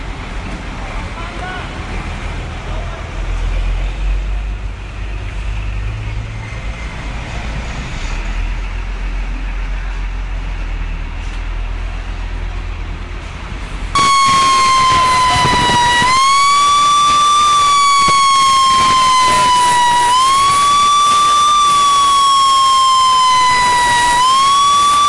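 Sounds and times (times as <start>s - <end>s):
loud siren: 14.0s - 25.0s.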